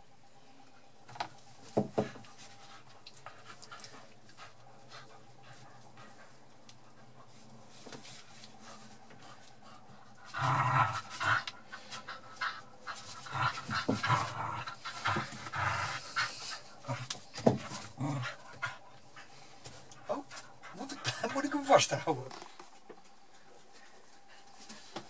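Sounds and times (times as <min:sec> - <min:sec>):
puppy panting: 0:02.0 - 0:07.6, 0:11.0 - 0:22.0.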